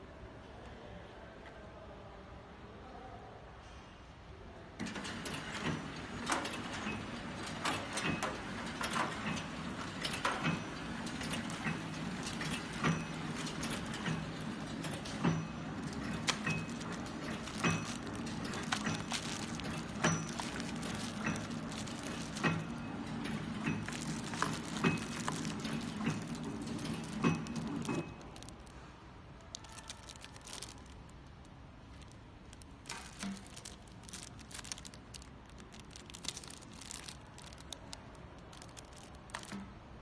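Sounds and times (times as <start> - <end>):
machine clicks and clacks: 4.8 - 28.7
packaging machine humming: 4.8 - 28.9, 29.5 - 31.1, 31.8 - 39.7.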